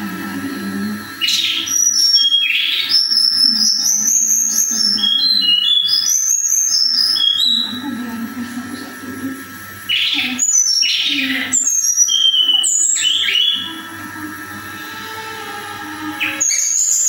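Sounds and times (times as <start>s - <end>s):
steady low hum: 0.0s - 17.0s
songbird singing: 0.4s - 7.8s, 9.9s - 14.0s, 16.0s - 17.0s.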